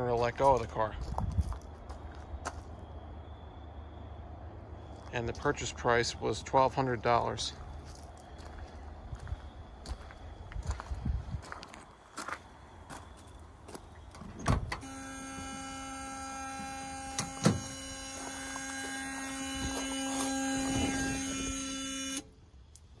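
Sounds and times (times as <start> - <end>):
car warning buzzer: 14.7 - 22.4.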